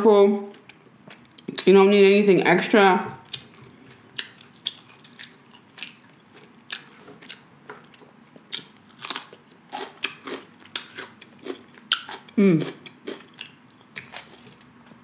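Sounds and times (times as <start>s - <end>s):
chewing crisp crunches: 3.2s - 14.7s.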